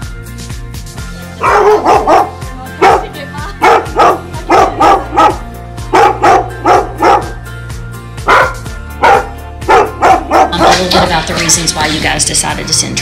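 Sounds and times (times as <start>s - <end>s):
background music: 0.0s - 13.0s
dog barking: 1.4s - 7.4s, 8.2s - 10.9s.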